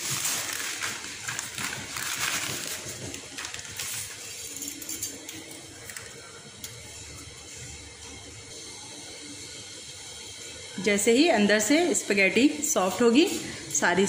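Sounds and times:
spaghetti crackling: 0.0 - 7.2
boiling water bubbling: 0.0 - 14.0.

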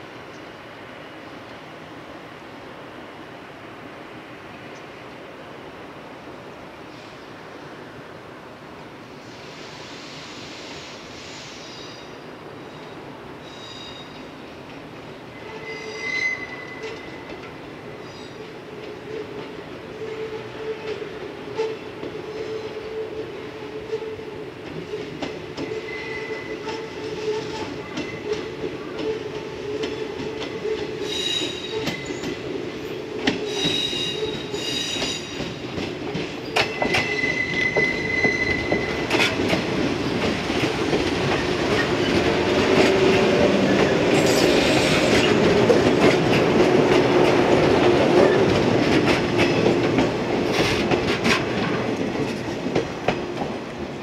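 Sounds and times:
electric train passing: 7.3 - 54.0
train wheels squealing: 9.3 - 14.4, 15.3 - 17.4, 18.0 - 18.5, 24.9 - 32.4, 33.3 - 35.6, 36.4 - 39.3, 43.7 - 45.5.

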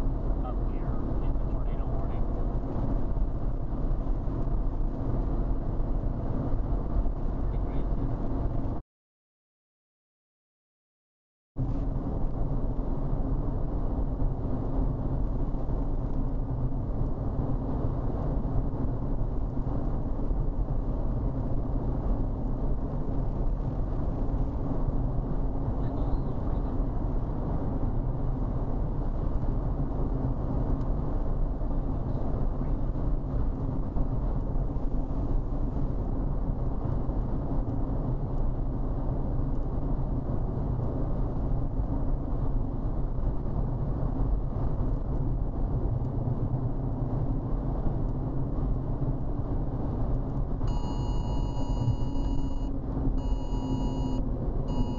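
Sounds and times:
car road and engine noise: 0.0 - 8.8, 11.6 - 54.9.

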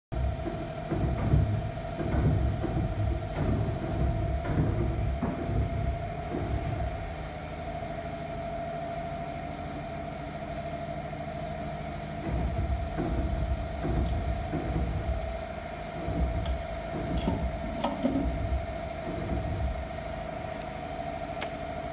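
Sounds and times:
steady mid-pitched hum: 0.1 - 21.9
phone handling rumble: 12.2 - 21.9.

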